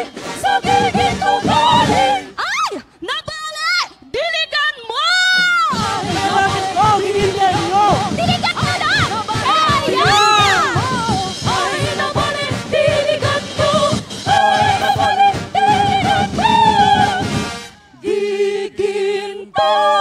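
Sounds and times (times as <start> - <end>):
drum beat: 0.0 - 2.4, 5.4 - 17.7
person singing with vibrato: 5.7 - 20.0.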